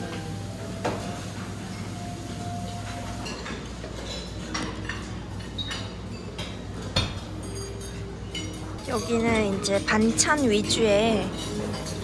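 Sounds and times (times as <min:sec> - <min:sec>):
dishes and cutlery clinking: 0:00.0 - 0:12.0.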